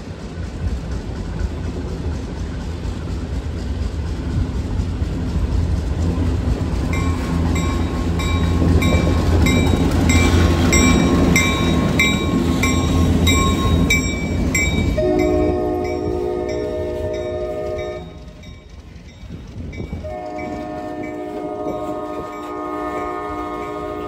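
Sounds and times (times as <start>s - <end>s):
locomotive engine rumble: 0.0s - 24.0s
bell dinging: 7.0s - 19.3s.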